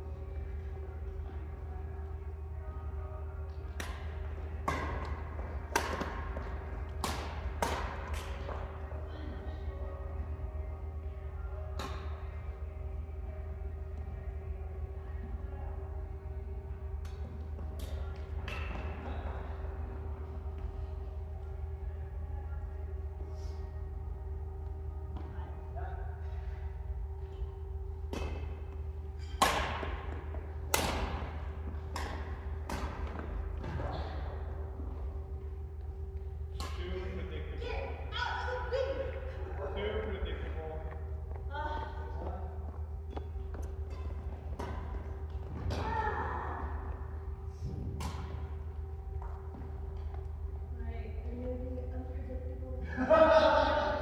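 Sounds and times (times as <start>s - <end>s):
steady low hum: 0.0s - 54.0s
racket striking shuttlecock: 3.7s - 8.6s, 28.1s - 28.6s, 29.2s - 33.8s, 48.0s - 48.5s.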